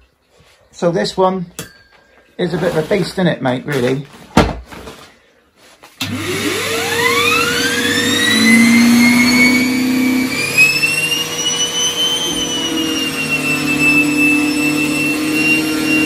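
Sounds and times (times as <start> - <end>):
vacuum cleaner motor whine: 6.0 - 16.0.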